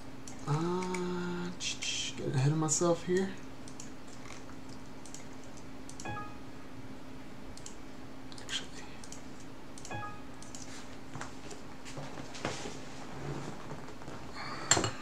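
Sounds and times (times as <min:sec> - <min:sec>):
faint steady hum: 0:00.0 - 0:15.0
computer mouse clicks: 0:03.6 - 0:06.2, 0:07.6 - 0:10.7.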